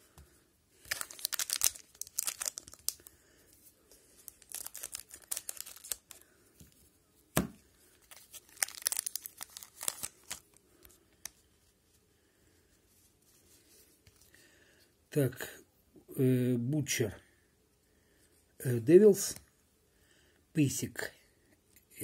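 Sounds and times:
foil wrapper crinkling and tearing: 0:00.8 - 0:03.1, 0:04.2 - 0:06.2, 0:08.0 - 0:10.6.

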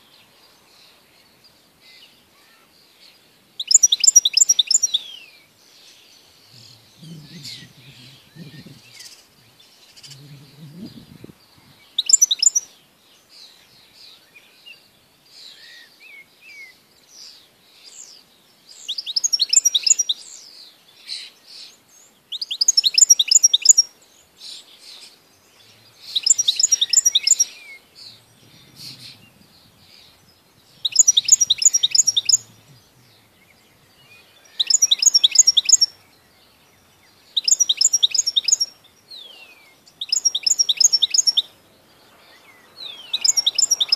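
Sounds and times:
soft bird twittering: 0:00.0 - 0:43.9
goldfinch trilled song: 0:12.0 - 0:12.7, 0:25.6 - 0:36.0, 0:37.2 - 0:39.0, 0:39.8 - 0:41.6, 0:42.8 - 0:43.9.

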